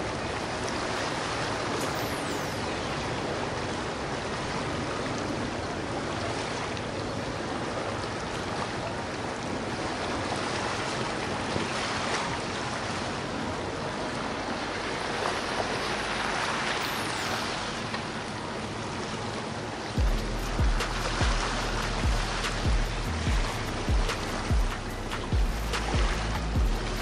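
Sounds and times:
water rushing in boat wake: 0.0 - 27.0.

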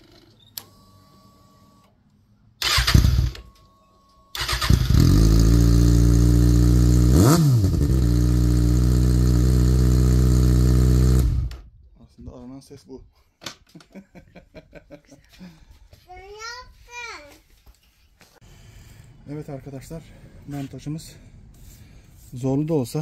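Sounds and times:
motorcycle engine cranking: 2.6 - 3.5, 4.4 - 6.5.

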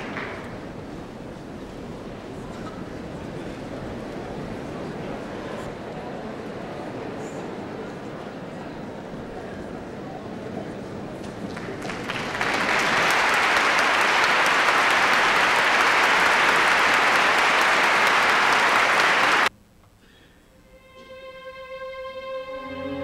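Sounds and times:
audience applauding: 0.0 - 0.6, 11.3 - 19.5
faint orchestra strings playing: 20.5 - 23.0.

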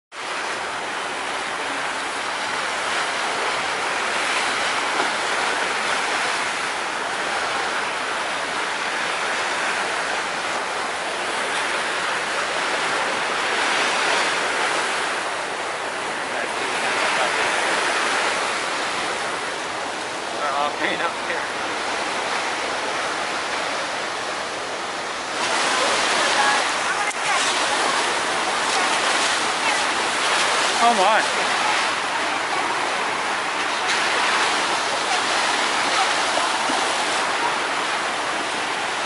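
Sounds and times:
water splashing along boat hull: 0.1 - 39.0.

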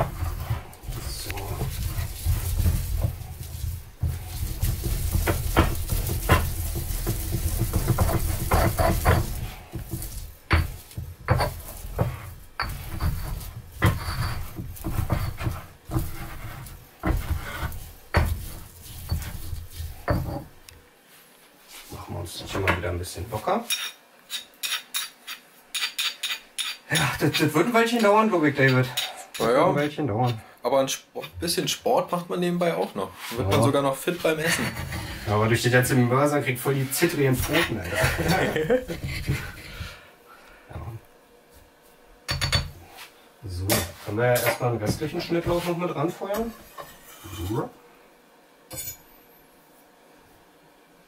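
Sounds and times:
pestle grinding in mortar: 0.0 - 20.6
stone knocking on stone: 4.0 - 16.1.

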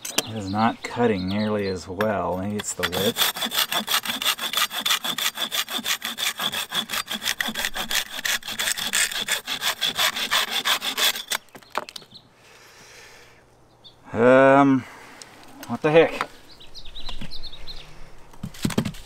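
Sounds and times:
hand saw cutting branch: 2.6 - 11.4.

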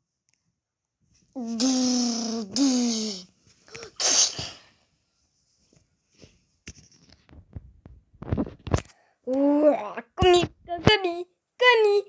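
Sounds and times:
person sneezing: 1.4 - 4.8.

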